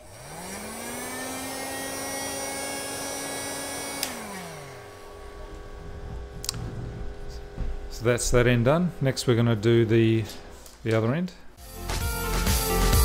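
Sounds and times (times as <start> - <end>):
heat gun fan whoosh: 0.0 - 7.6
heat gun switch click: 4.0 - 4.2.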